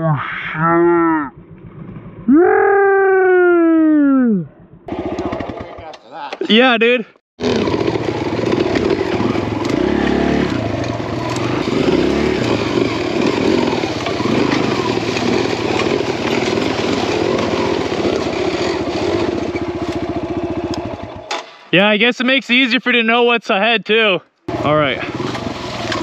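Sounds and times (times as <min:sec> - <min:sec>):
dirt bike engine revving: 0:04.8 - 0:06.0, 0:07.4 - 0:21.3, 0:24.5 - 0:26.0
second dirt bike running: 0:04.8 - 0:06.1, 0:07.4 - 0:21.3, 0:24.5 - 0:26.0.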